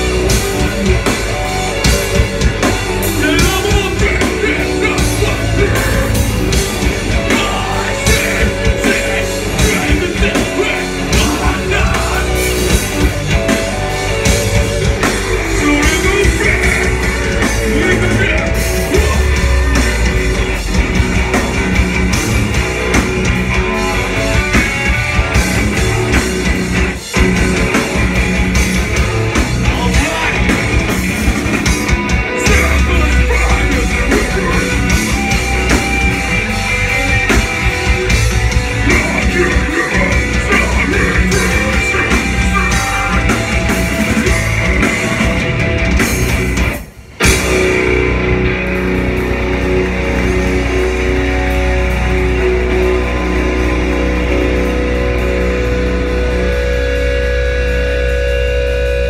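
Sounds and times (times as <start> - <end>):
drums: 0.0 - 59.0
electric guitars and bass: 0.0 - 59.0
vocalist singing: 3.0 - 13.4, 15.4 - 20.1, 29.6 - 30.6, 32.4 - 35.5, 38.6 - 44.8.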